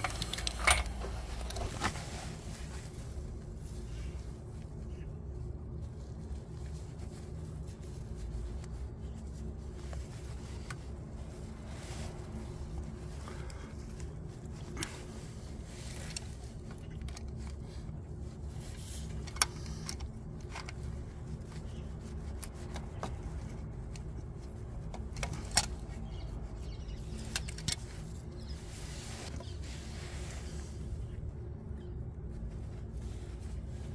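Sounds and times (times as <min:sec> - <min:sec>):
tools clinking against metal: 0:00.0 - 0:01.6
steady low hum: 0:00.0 - 0:33.9.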